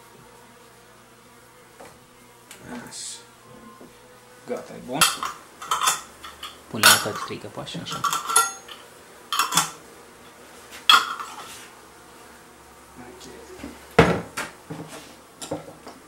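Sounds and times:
glass jars clinking: 0:05.0 - 0:09.8.

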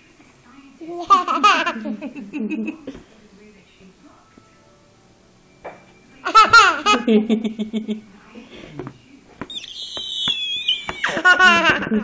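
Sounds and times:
sharp taps: 0:08.8 - 0:11.8
baby squealing: 0:09.4 - 0:11.5.

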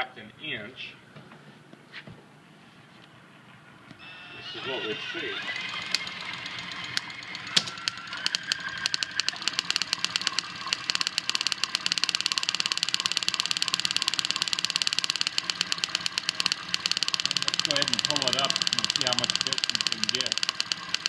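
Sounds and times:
high-voltage sparks snapping: 0:05.6 - 0:21.0.

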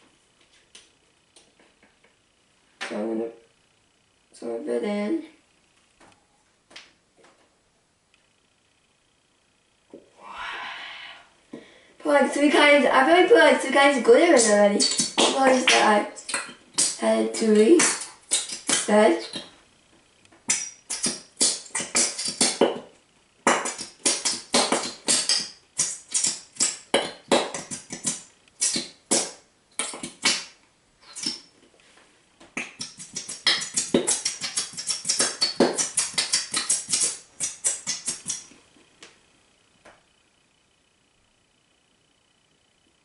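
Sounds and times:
glue tube sputtering and squelching: 0:14.3 - 0:19.5, 0:20.5 - 0:22.8, 0:23.4 - 0:31.5, 0:32.6 - 0:38.5.

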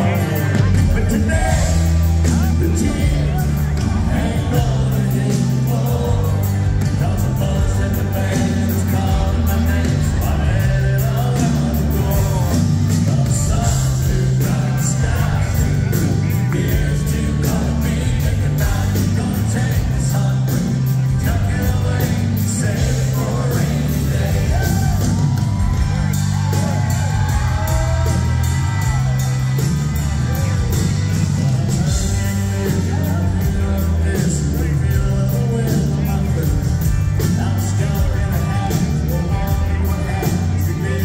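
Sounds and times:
crowd yelling and whooping: 0:00.0 - 0:17.8, 0:22.6 - 0:34.7
man singing lead vocal: 0:00.0 - 0:29.1, 0:31.6 - 0:41.0
live country band playing: 0:00.0 - 0:41.0
steady drum beat: 0:00.0 - 0:41.0.

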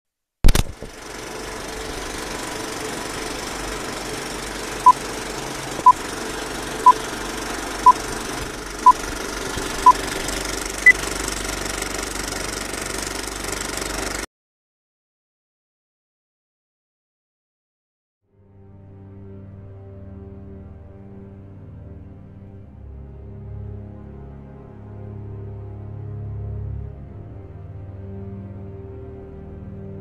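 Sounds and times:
film projector clattering: 0:00.5 - 0:14.2.

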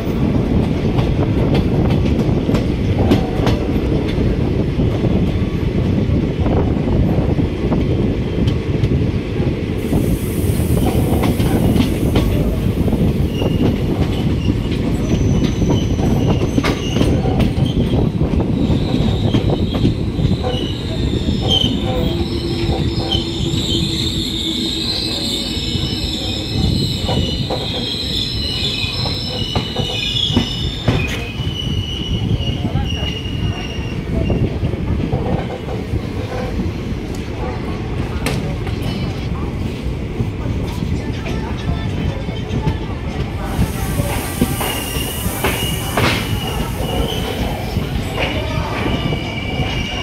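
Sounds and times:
train rumbling on rails: 0:00.0 - 0:50.0
high-pitched brake squealing: 0:18.6 - 0:34.5, 0:43.8 - 0:50.0.

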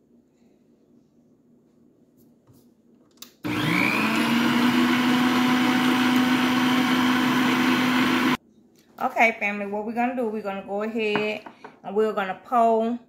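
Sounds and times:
stand mixer motor running: 0:03.5 - 0:08.4.

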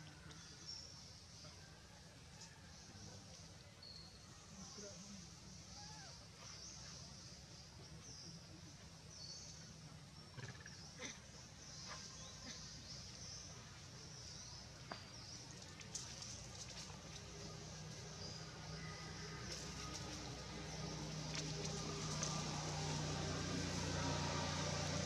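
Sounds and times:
rustling of dry leaves: 0:13.3 - 0:25.0.

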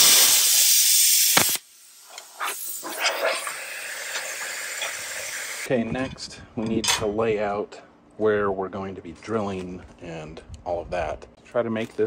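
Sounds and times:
air hissing from torch: 0:00.0 - 0:05.7
plasma cutter hissing: 0:00.0 - 0:05.7.

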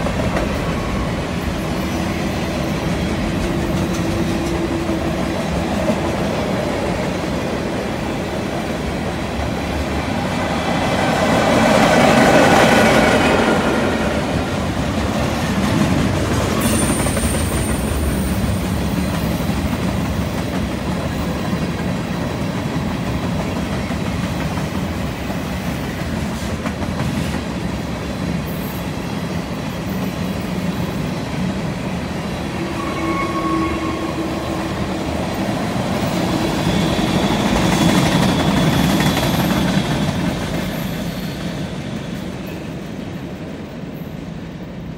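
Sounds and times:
train wheels clattering on rail: 0:00.0 - 0:33.1, 0:34.6 - 0:44.4
train wheel squeal: 0:16.3 - 0:22.4, 0:32.2 - 0:44.4.

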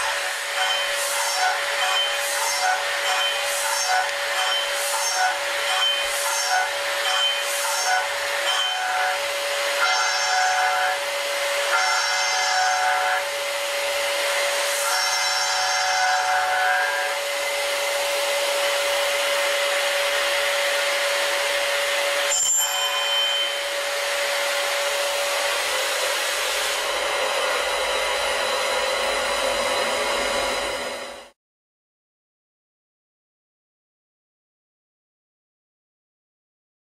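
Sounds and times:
machine whine: 0:00.0 - 0:31.4
ringing tones of cutter on metal: 0:00.1 - 0:09.2, 0:09.8 - 0:11.0, 0:11.7 - 0:13.2, 0:22.2 - 0:23.9.

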